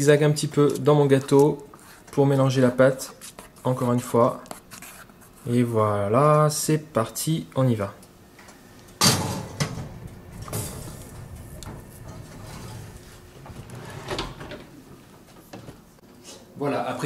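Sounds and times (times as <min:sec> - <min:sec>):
metal scraping: 0:09.2 - 0:14.2.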